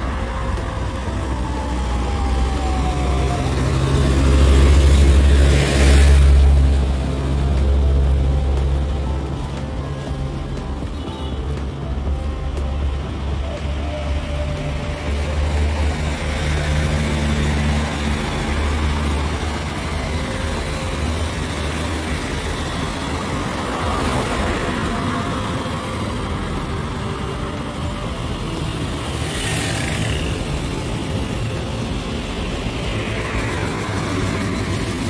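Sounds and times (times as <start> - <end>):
vehicle engine and road noise: 0.0 - 35.0.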